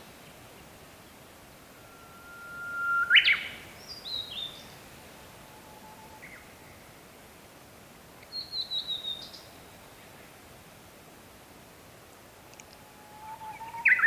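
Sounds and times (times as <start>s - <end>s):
bush warbler singing: 1.9s - 4.8s, 8.2s - 9.6s, 12.6s - 14.0s.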